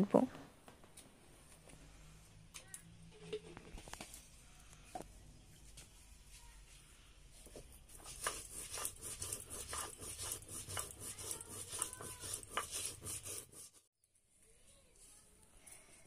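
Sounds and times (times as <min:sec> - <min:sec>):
stone grinder crushing seeds: 0:08.0 - 0:13.8.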